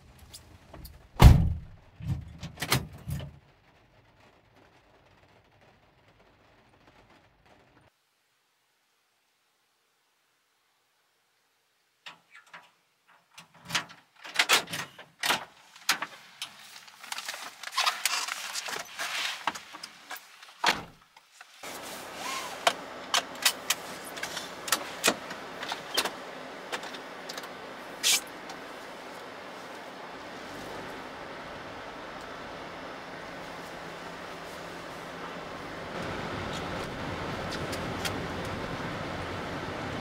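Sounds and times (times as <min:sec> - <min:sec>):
steady running noise: 0:21.7 - 0:40.0.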